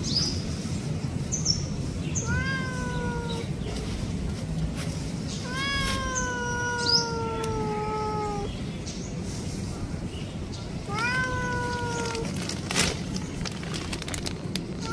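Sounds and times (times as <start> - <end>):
cat meowing: 2.2 - 3.6, 5.4 - 8.5, 10.8 - 12.4.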